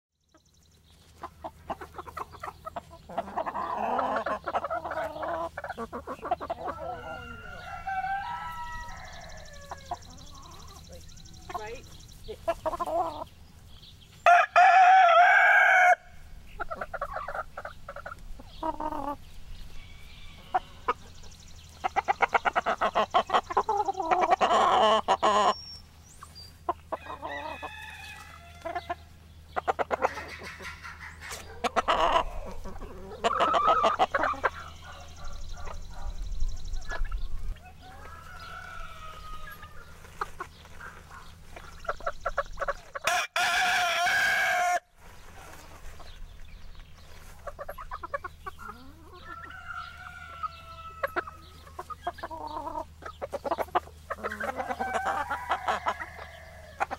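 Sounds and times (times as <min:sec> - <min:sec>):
chickens clucking: 0:00.2 - 0:56.9
rooster crowing: 0:06.8 - 0:10.0, 0:14.2 - 0:16.2, 0:27.0 - 0:28.9, 0:37.7 - 0:39.8, 0:43.1 - 0:44.9, 0:49.2 - 0:51.6, 0:54.4 - 0:56.9.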